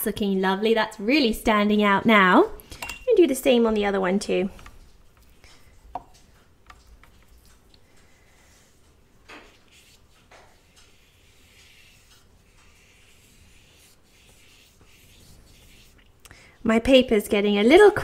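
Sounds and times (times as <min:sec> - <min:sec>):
paintbrush rubbing on paper: 0:08.0 - 0:16.1.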